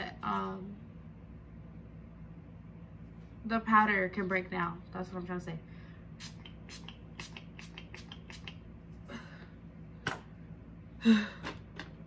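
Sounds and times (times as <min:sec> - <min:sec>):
spray bottle hissing sprays: 0:06.2 - 0:08.6.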